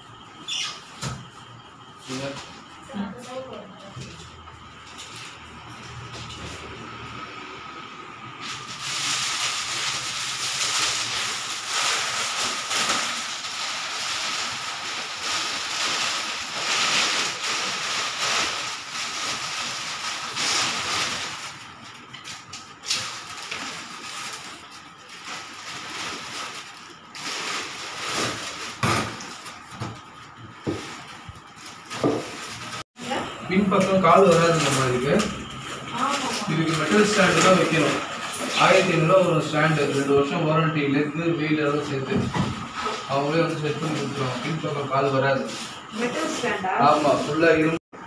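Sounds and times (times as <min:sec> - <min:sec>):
plastic sheet crinkling: 0:08.6 - 0:29.7, 0:35.9 - 0:40.1.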